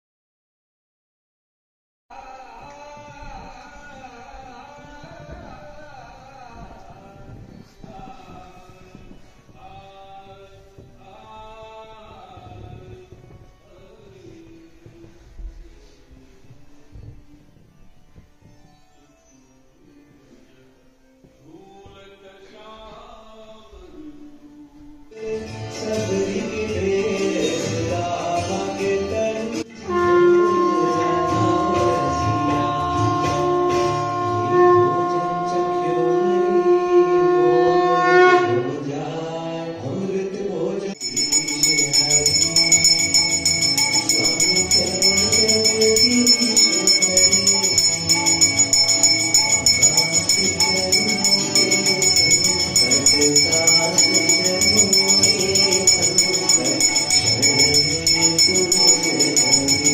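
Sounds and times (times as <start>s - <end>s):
devotional singing with held notes: 21.3s - 59.9s
temple bells ringing: 41.0s - 59.9s.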